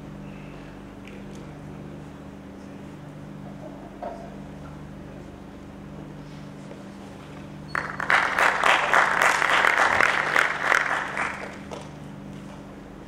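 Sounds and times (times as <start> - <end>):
audience applauding: 7.7 - 11.9.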